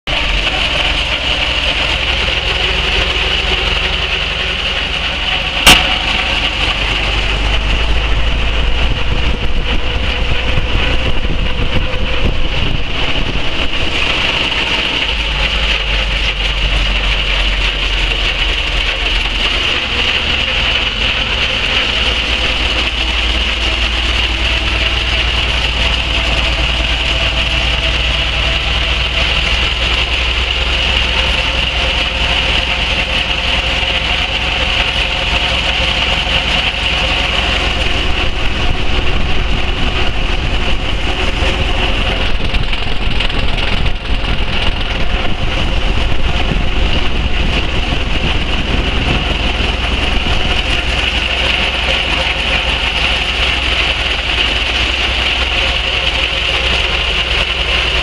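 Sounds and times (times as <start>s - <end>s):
steam tractor running: 0.0s - 58.0s
sharp knock: 5.6s - 6.5s.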